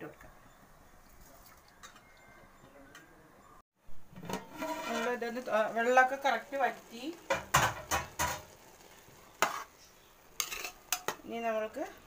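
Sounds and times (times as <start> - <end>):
utensil stirring rice in metal pot: 10.4 - 11.2.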